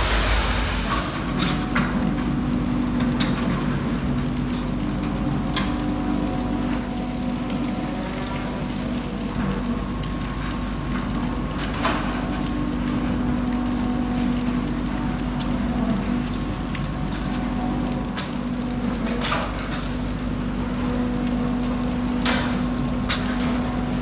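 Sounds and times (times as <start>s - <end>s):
steady low hum: 0.0s - 11.3s.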